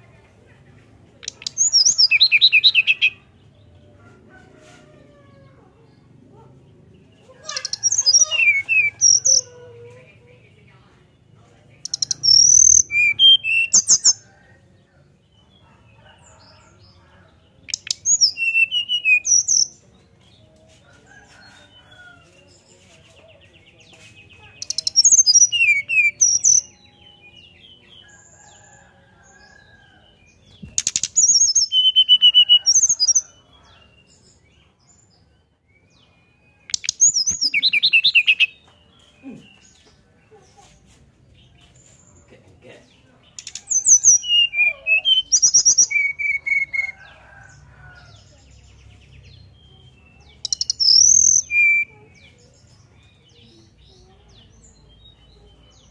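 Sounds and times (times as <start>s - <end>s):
bird whistling song: 11.9s - 14.2s, 17.7s - 19.7s, 30.8s - 33.1s, 43.4s - 46.9s, 50.4s - 51.9s.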